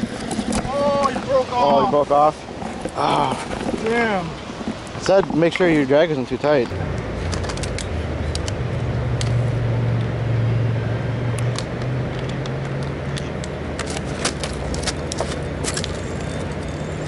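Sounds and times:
low motor hum: 0:06.7 - 0:17.0.

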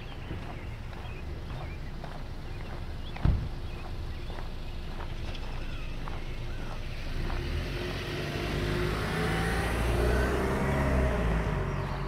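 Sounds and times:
car driving past: 0:06.5 - 0:12.0.

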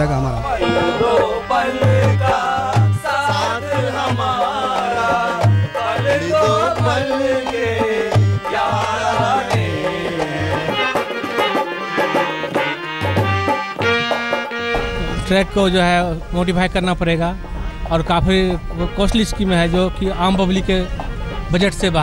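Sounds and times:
drum beating quick rhythm: 0:00.0 - 0:22.0
wavering melody line: 0:00.4 - 0:07.0, 0:13.4 - 0:22.0.

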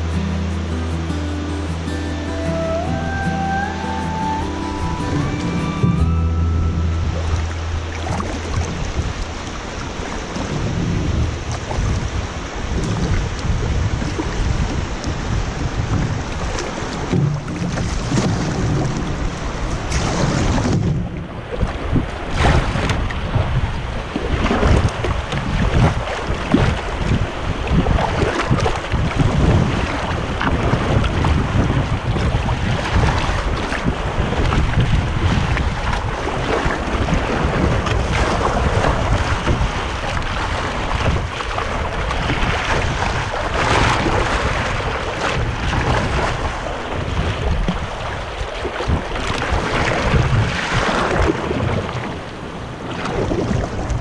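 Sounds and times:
river rapids rushing: 0:00.0 - 0:53.7
wind buffeting microphone: 0:00.0 - 0:54.0.

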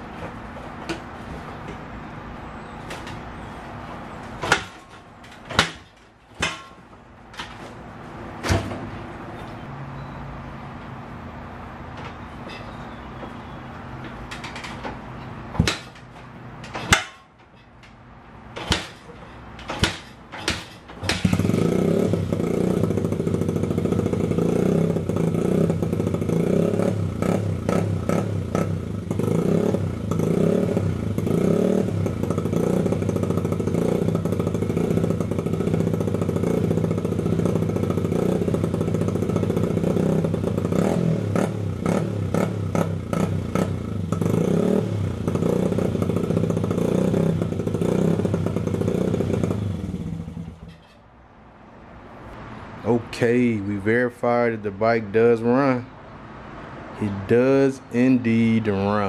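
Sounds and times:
motorcycle engine revving: 0:18.5 - 0:50.8.

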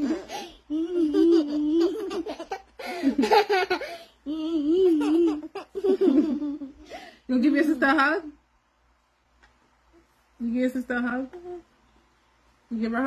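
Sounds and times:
baby giggling: 0:00.0 - 0:07.0.

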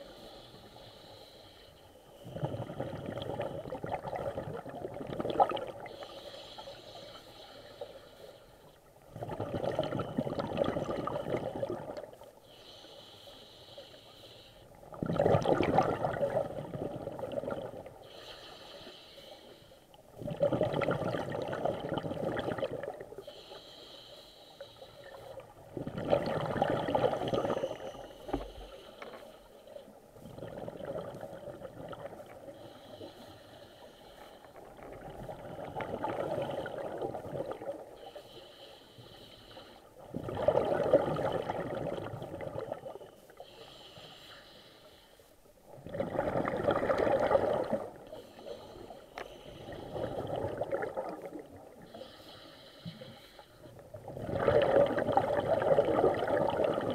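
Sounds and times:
hissing inhale through regulator: 0:00.0 - 0:03.8, 0:05.8 - 0:08.9, 0:11.0 - 0:14.9, 0:17.9 - 0:20.1, 0:23.1 - 0:25.5, 0:27.0 - 0:30.0, 0:32.2 - 0:35.0, 0:35.6 - 0:40.1, 0:42.9 - 0:45.5, 0:47.9 - 0:53.9
bubbling exhalations underwater: 0:02.3 - 0:05.9, 0:09.1 - 0:12.0, 0:15.0 - 0:17.8, 0:20.2 - 0:23.0, 0:25.8 - 0:27.6, 0:40.1 - 0:42.8, 0:45.8 - 0:47.9, 0:54.0 - 0:56.9.

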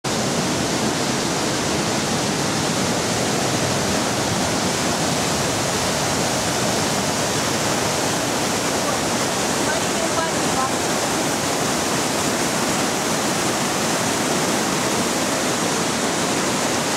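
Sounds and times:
rushing river rapids: 0:00.1 - 0:16.9.

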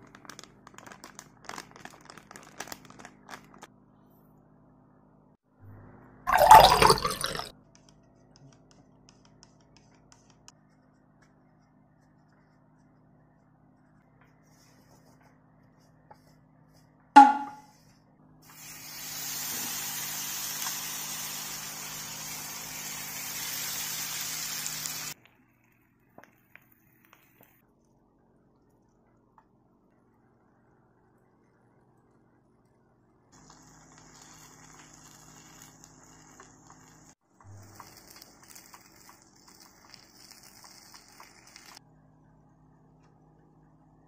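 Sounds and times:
water pouring into a bowl: 0:06.3 - 0:07.5, 0:33.4 - 0:41.8
batter sizzling in a pan: 0:18.5 - 0:25.2, 0:33.4 - 0:41.8.

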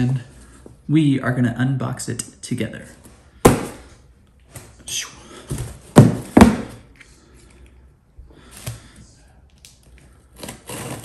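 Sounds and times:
cardboard box thunk: 0:05.5 - 0:06.8.

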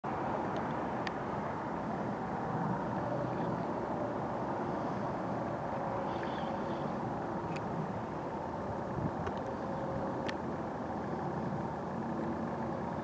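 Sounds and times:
distant propeller plane droning: 0:00.0 - 0:13.0.

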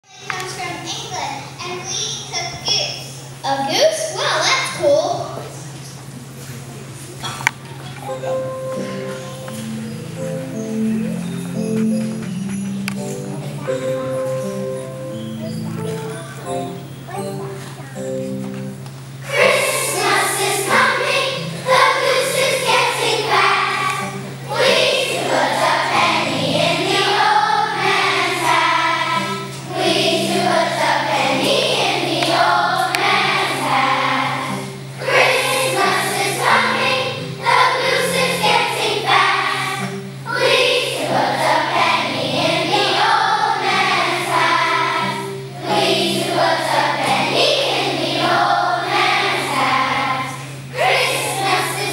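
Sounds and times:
children's choir singing: 0:08.1 - 0:51.9.

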